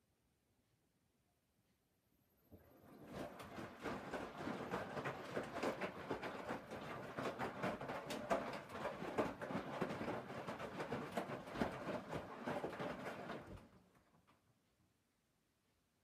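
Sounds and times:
laundry sloshing in washing machine: 0:02.5 - 0:14.1.

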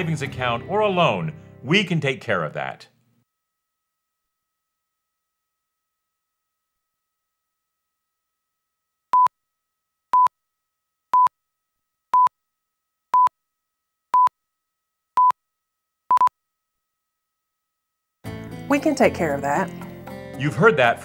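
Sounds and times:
short countdown beeps: 0:16.1 - 0:16.3.

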